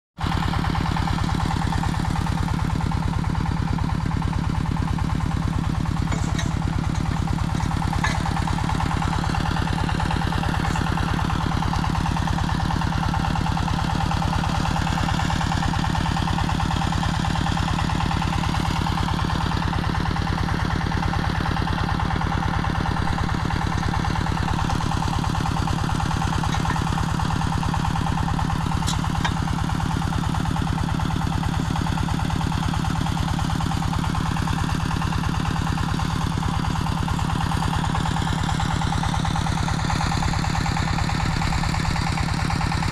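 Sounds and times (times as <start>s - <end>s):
small engine running: 0.2s - 42.9s.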